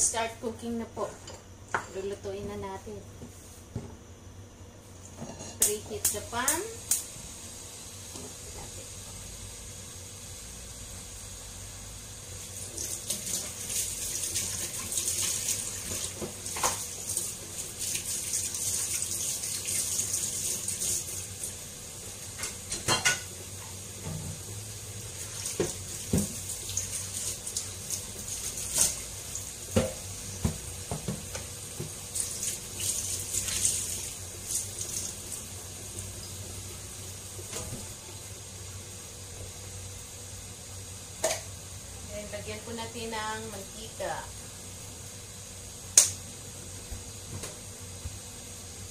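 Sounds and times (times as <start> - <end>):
water running from a tap: 12.3 - 22.2, 24.5 - 38.7.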